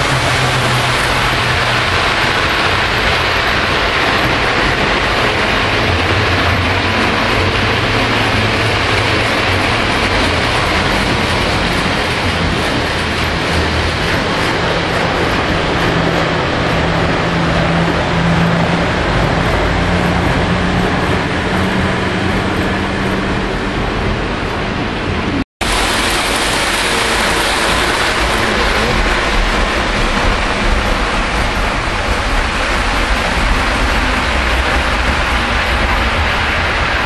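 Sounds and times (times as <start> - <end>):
model trains rolling on metal track: 0.0 - 37.0.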